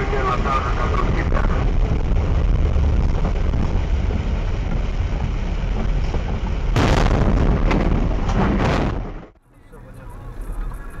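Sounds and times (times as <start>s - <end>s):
vehicle driving on wet road: 0.0s - 6.8s.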